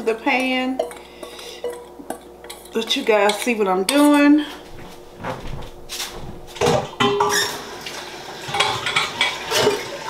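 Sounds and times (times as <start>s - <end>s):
metal bowl and dishes clattering: 0.3s - 4.4s, 6.6s - 7.6s, 8.4s - 10.0s.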